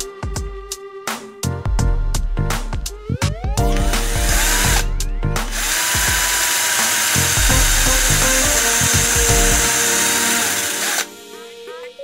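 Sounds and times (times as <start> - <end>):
cordless drill boring wood: 3.7 - 11.1.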